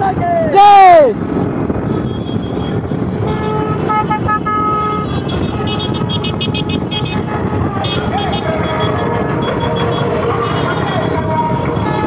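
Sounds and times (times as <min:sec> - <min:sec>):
motorcycles and scooters running: 0:00.0 - 0:12.0
vehicle horns honking: 0:01.8 - 0:12.0.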